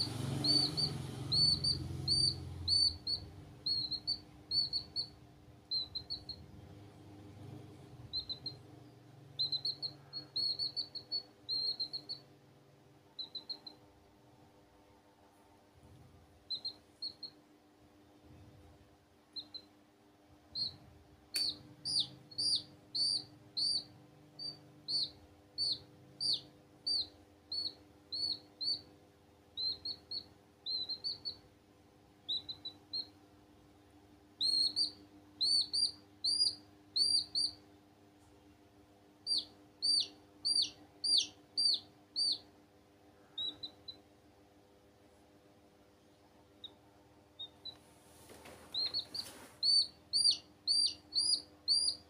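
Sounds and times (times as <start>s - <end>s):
baby chicks peeping: 0.0s - 12.4s, 13.1s - 14.0s, 15.8s - 17.4s, 19.3s - 19.7s, 20.5s - 31.5s, 32.2s - 33.2s, 34.3s - 37.7s, 39.2s - 42.6s, 43.2s - 44.1s, 46.6s - 52.0s
faint steady hum: 0.0s - 52.0s.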